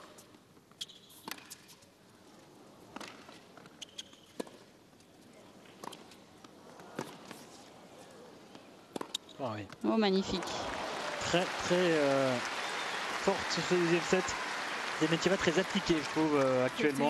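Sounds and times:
tennis ball bouncing: 0:00.8 - 0:01.6, 0:02.9 - 0:04.7, 0:05.8 - 0:07.4, 0:08.5 - 0:10.4
rackets striking tennis ball: 0:08.5 - 0:09.8.

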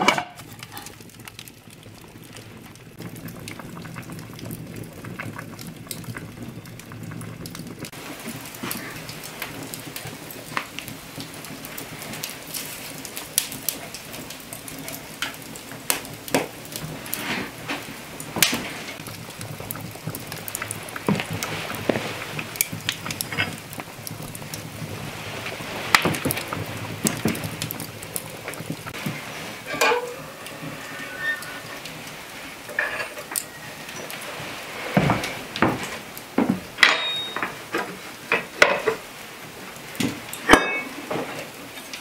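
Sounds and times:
fire popping: 0:00.0 - 0:42.0
wood fire crackling: 0:00.0 - 0:42.0.

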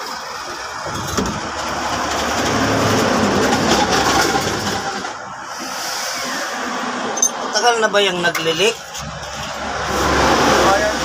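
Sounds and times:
vehicle engine running: 0:00.0 - 0:05.5.

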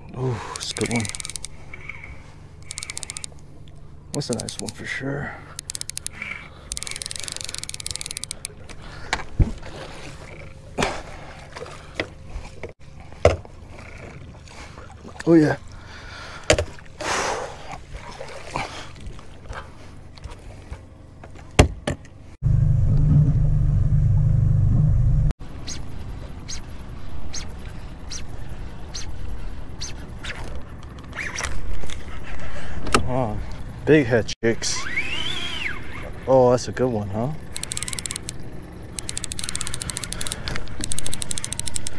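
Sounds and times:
rapid clicks: 0:00.6 - 0:01.6, 0:02.6 - 0:03.4, 0:04.1 - 0:04.8, 0:05.6 - 0:08.6, 0:37.5 - 0:41.9
fishing reel squeaking: 0:00.6 - 0:01.9, 0:02.6 - 0:03.4, 0:04.2 - 0:04.8, 0:05.6 - 0:08.6, 0:34.6 - 0:36.4, 0:37.4 - 0:41.9
boat motor running: 0:00.6 - 0:14.5, 0:35.0 - 0:41.9
low rumble: 0:22.4 - 0:32.2.

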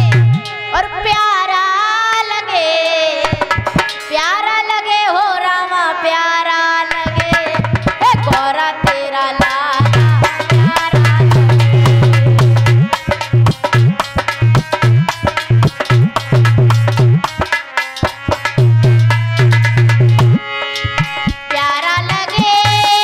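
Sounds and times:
heavy low beat: 0:00.0 - 0:00.6, 0:09.8 - 0:21.5
drum strikes: 0:00.0 - 0:01.2, 0:03.2 - 0:04.2, 0:09.4 - 0:23.0
held instrumental notes: 0:00.0 - 0:02.2, 0:09.4 - 0:23.0
girl singing devotional song: 0:00.3 - 0:03.5, 0:04.1 - 0:12.4, 0:21.5 - 0:23.0.

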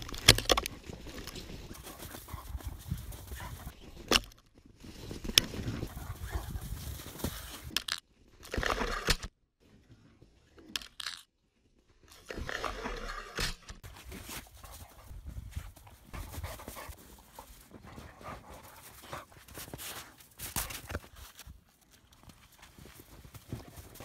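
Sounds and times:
dog crunching snow: 0:16.2 - 0:21.4.

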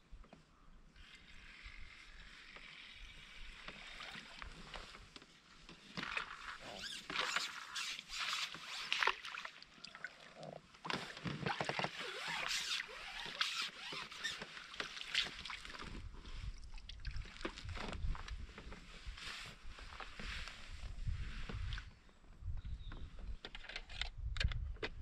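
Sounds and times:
water splashing and sloshing: 0:03.6 - 0:18.5.

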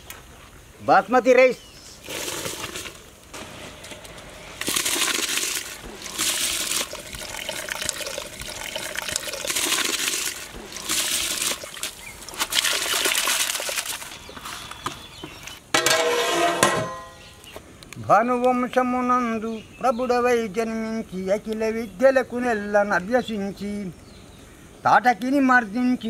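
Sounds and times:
rice pouring into boiling water: 0:02.0 - 0:14.2
metal lid ringing: 0:15.8 - 0:17.4.

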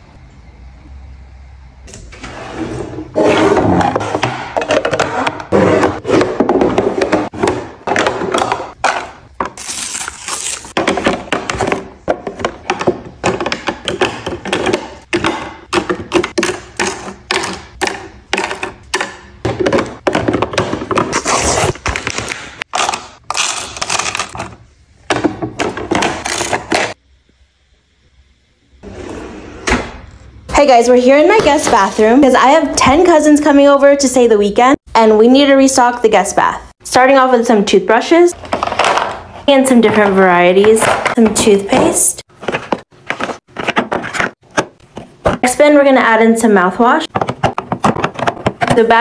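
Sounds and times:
plastic items clattering: 0:21.8 - 0:27.0, 0:38.4 - 0:45.5, 0:47.1 - 0:49.0.

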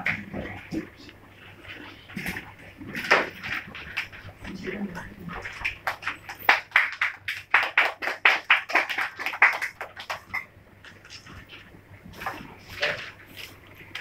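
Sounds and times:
people clapping: 0:03.0 - 0:11.3.

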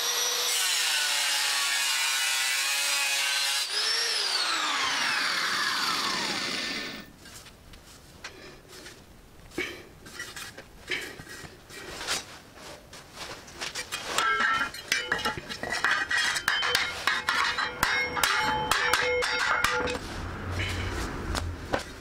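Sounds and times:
hammer tapping metal plate: 0:14.2 - 0:20.0.

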